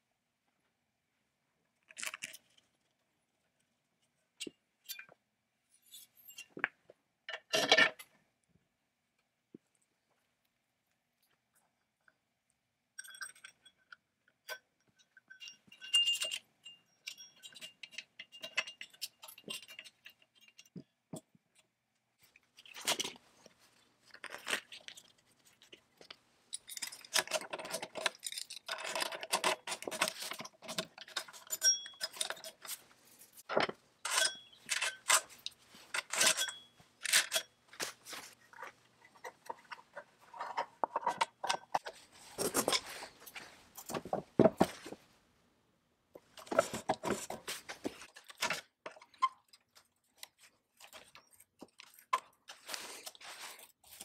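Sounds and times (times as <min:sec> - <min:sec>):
metal parts clicking: 0:26.5 - 0:32.8, 0:33.4 - 0:37.5
saw chain links clinking: 0:31.2 - 0:32.8.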